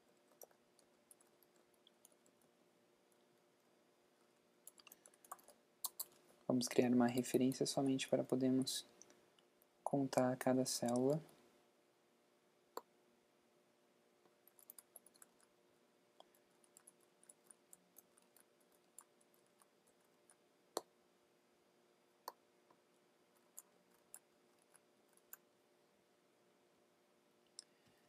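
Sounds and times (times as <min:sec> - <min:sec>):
computer keyboard clicks: 0:04.7 - 0:06.2, 0:14.5 - 0:15.4
mouse clicks: 0:04.7 - 0:06.2.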